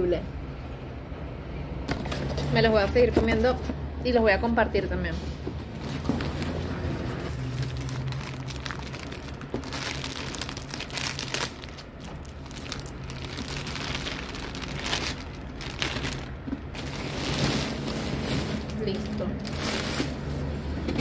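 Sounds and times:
plastic wrapping crinkling: 5.8s - 20.5s.

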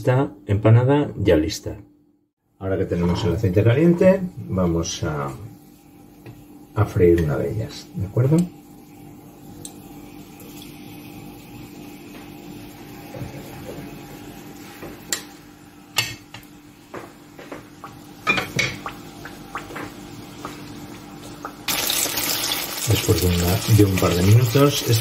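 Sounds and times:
food sizzling in oil: 8.5s - 25.0s.

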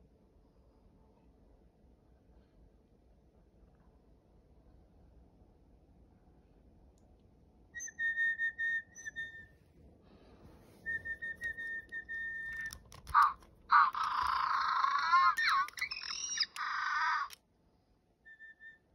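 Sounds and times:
whistle toots: 7.8s - 9.6s, 10.8s - 12.8s, 18.3s - 18.9s
toy penguin electronic chirps: 10.9s - 17.4s.

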